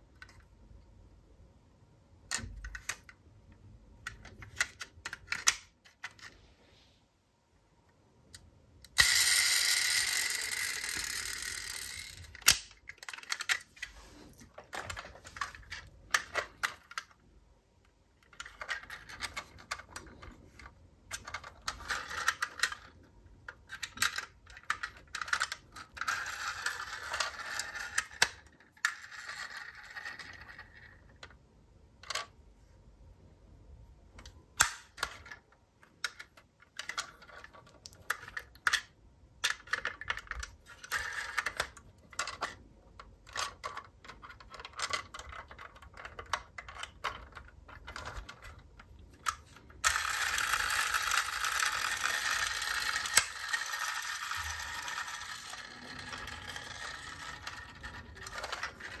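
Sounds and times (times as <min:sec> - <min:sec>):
toy cars clicking together: 0:04.0 - 0:06.3, 0:08.9 - 0:13.9, 0:18.2 - 0:31.4, 0:34.2 - 0:59.0
toy cars rattling: 0:08.9 - 0:13.9, 0:18.2 - 0:31.2, 0:43.3 - 0:59.0.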